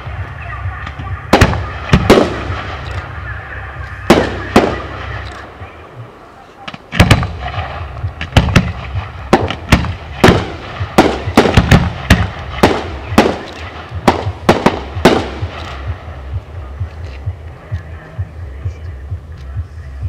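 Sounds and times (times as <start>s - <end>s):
fireworks bangs: 0.0s - 3.3s, 3.9s - 5.7s, 6.6s - 16.2s
low rumble: 0.0s - 20.0s.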